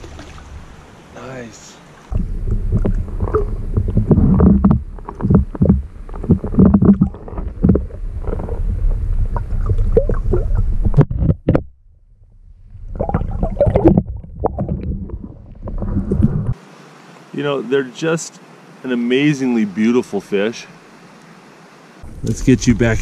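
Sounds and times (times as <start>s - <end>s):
underwater sloshing and gurgling: 0.0s - 1.1s, 1.8s - 16.6s.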